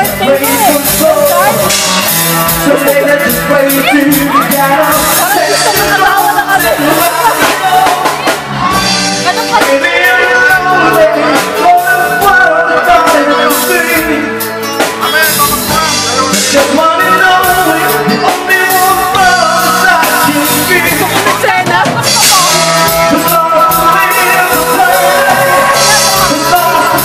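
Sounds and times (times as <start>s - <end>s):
drum kit: 0.0s - 27.0s
electric guitar: 0.0s - 27.0s
man singing lead: 0.0s - 27.0s
women's backing vocals: 18.8s - 27.0s.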